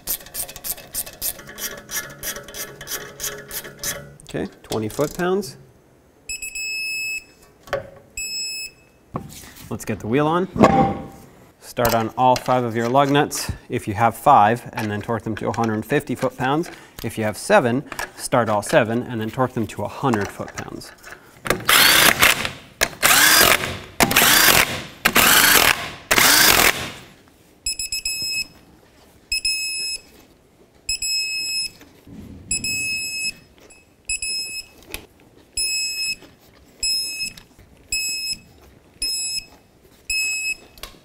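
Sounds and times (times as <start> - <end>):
impact gun spinning lug nuts: 21.5 - 27.0
electronic beeping: 32.5 - 34.7.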